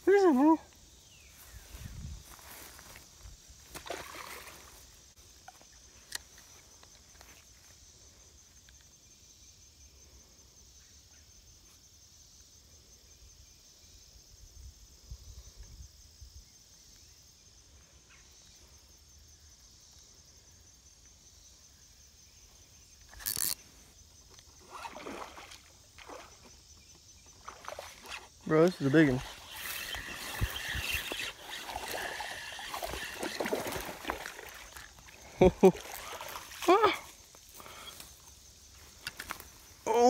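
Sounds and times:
high-pitched insect chirring: 0:22.8 - 0:24.9, 0:26.2 - 0:39.7.

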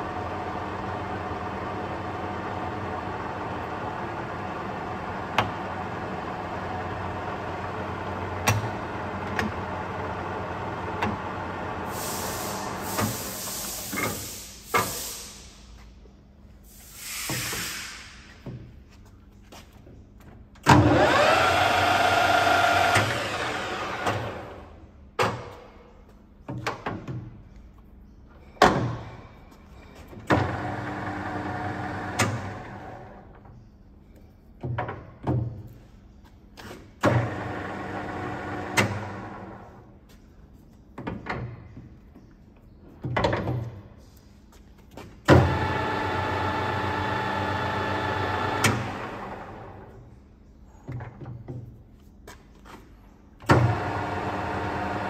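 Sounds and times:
lathe motor gear hum: 0:20.8 - 0:24.7, 0:45.4 - 0:49.8, 0:53.6 - 0:55.0
lathe starting with rising whine: 0:20.8 - 0:24.7, 0:45.4 - 0:49.8, 0:53.7 - 0:55.0.

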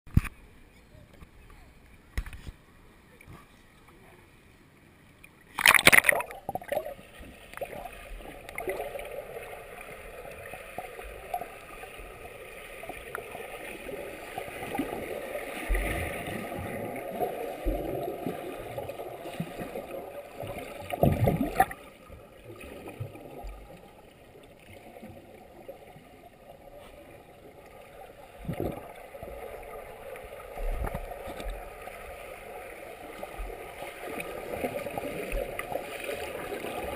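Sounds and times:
underwater water rushing and gurgling: 0:05.5 - 0:36.9
loud splash: 0:05.6 - 0:06.8.

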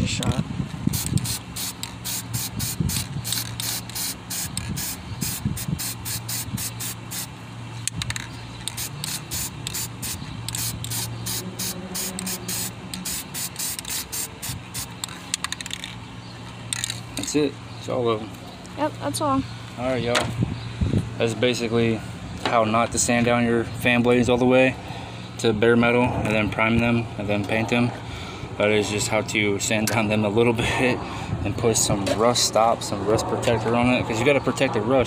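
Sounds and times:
aerosol spray can hissing: 0:00.9 - 0:07.3, 0:08.7 - 0:15.1.

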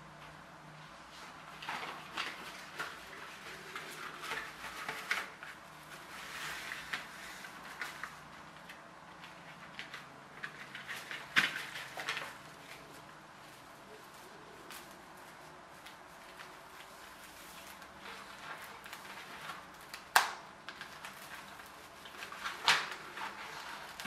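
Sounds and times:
plastic film crinkling: 0:01.2 - 0:24.0.

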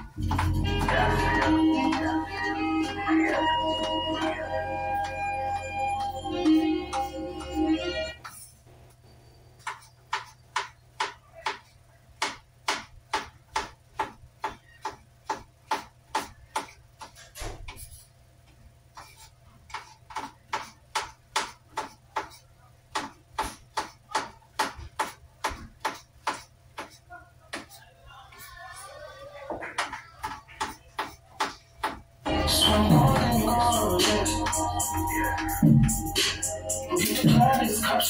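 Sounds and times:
knife chopping cabbage on board: 0:09.6 - 0:17.8, 0:19.7 - 0:27.7.

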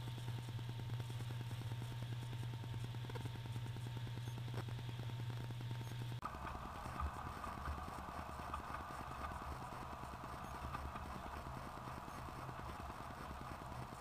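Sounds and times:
model train motor hum: 0:06.2 - 0:14.0.

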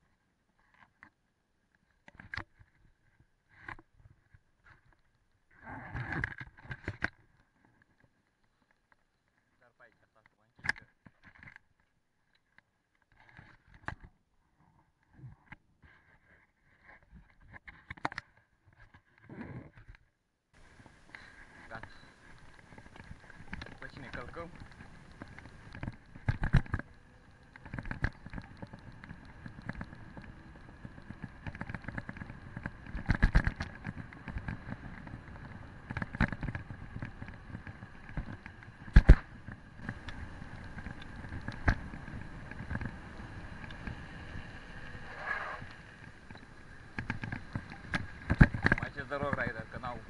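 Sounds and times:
bike frame rattling over bumps: 0:20.6 - 0:50.0
tyres rumbling on asphalt: 0:20.6 - 0:50.0.

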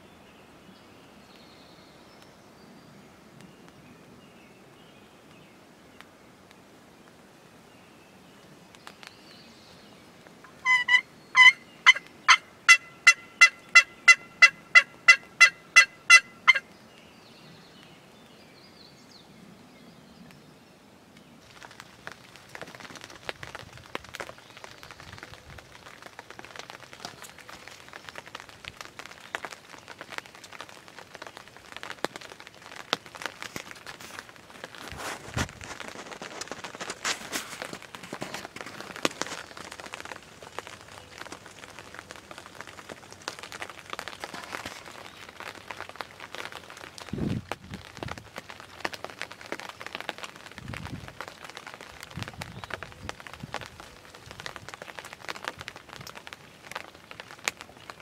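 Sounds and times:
turkey yelps: 0:10.5 - 0:16.6
rustling and crackling: 0:21.2 - 0:58.0.

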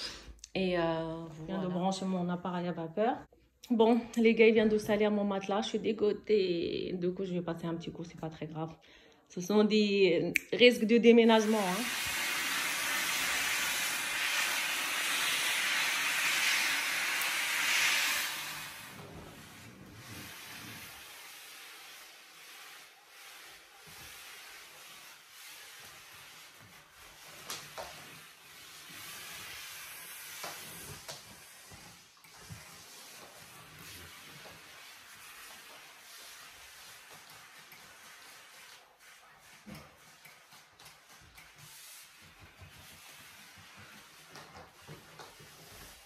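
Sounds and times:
steam cleaner hissing: 0:11.4 - 0:27.4, 0:28.2 - 0:39.1.

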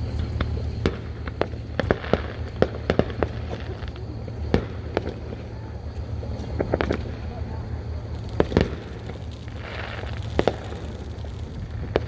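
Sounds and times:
distant fireworks bangs and pops: 0:00.0 - 0:12.0
low rumble: 0:00.0 - 0:12.0.

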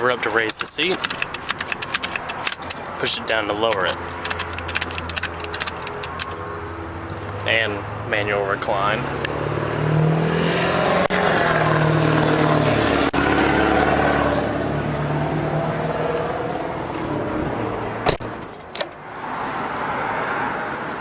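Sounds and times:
vehicle engine rumble: 0:00.0 - 0:21.0
release lever clicks: 0:00.9 - 0:02.8, 0:03.6 - 0:06.4.

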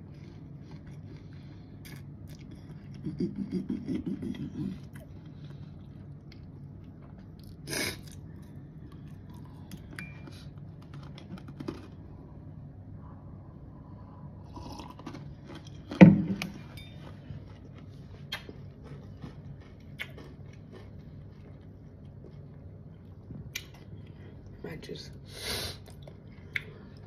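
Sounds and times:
chewing with wet mouth clicks: 0:00.1 - 0:03.1, 0:04.8 - 0:11.5, 0:14.6 - 0:24.6, 0:25.8 - 0:27.0.

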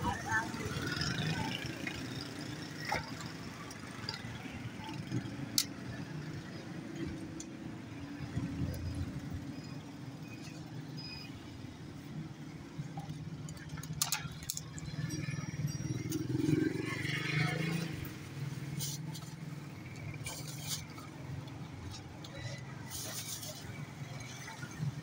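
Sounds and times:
road traffic rumble: 0:00.0 - 0:25.0.

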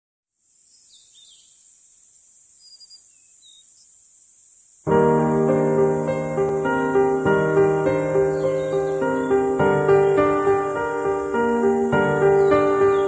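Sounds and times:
faint high hiss: 0:00.3 - 0:13.0
faint chirps: 0:00.4 - 0:13.0
piano music: 0:04.9 - 0:13.0.

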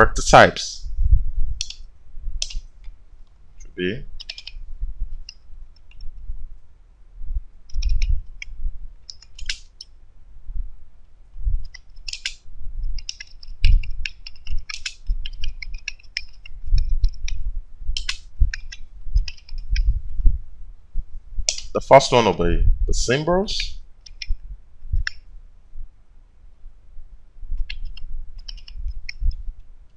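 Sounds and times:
computer keyboard typing: 0:01.6 - 0:02.6, 0:04.2 - 0:04.6, 0:07.7 - 0:09.9, 0:11.6 - 0:19.9, 0:21.5 - 0:21.7, 0:24.1 - 0:24.4, 0:27.6 - 0:29.3.

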